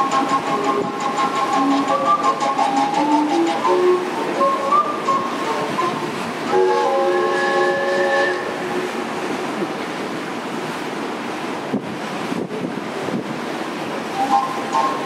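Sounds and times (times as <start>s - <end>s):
steam whistle chord: 0.0s - 9.1s, 14.2s - 15.0s
water noise: 0.0s - 15.0s
wind: 0.0s - 15.0s.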